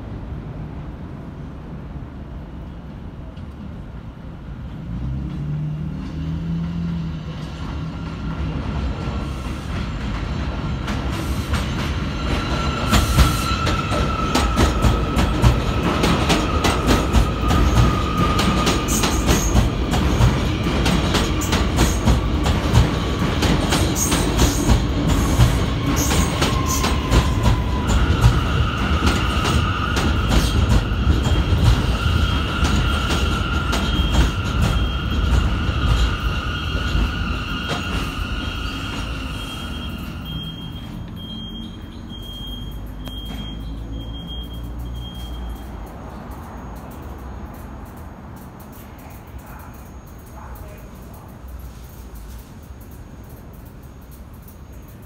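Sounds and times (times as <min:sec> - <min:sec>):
train wheels clacking over rail joints: 0:07.4 - 0:39.1.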